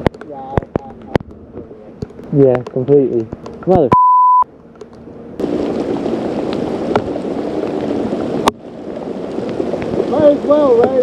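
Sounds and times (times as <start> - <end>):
heavy rain and wind: 0.0 - 3.9, 5.4 - 11.0
censor bleep tone: 3.9 - 4.5.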